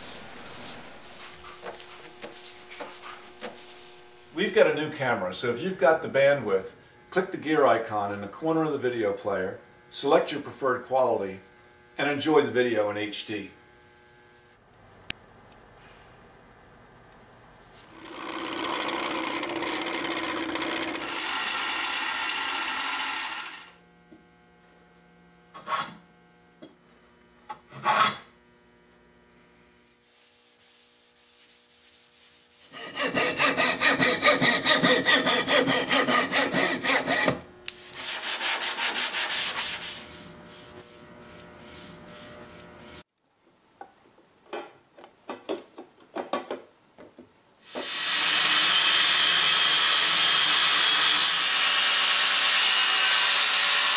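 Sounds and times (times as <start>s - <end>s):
hand tools rubbing wood: 17.7s - 23.7s, 30.0s - 43.1s.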